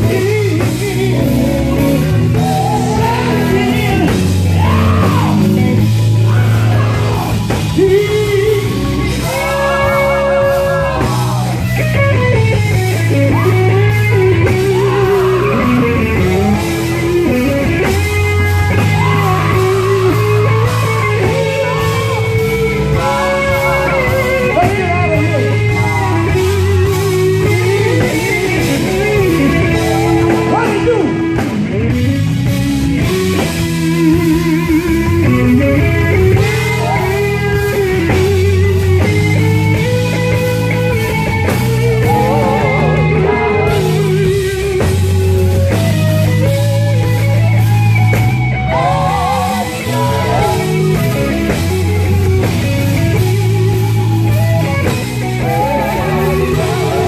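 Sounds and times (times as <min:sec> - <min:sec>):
amplified band with guitar: 0:00.0 - 0:57.0
low bass line: 0:00.0 - 0:57.0
person singing into microphone: 0:55.4 - 0:57.0.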